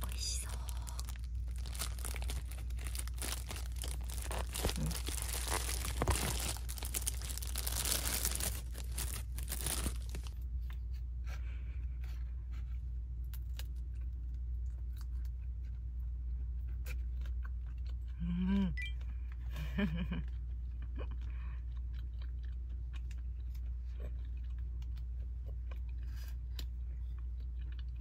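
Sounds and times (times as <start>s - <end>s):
plastic packaging crinkling: 0.0s - 10.4s.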